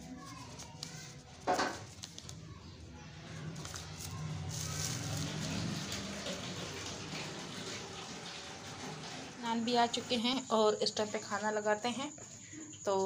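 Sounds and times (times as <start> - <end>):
plastic bags rustling: 3.3 - 8.2.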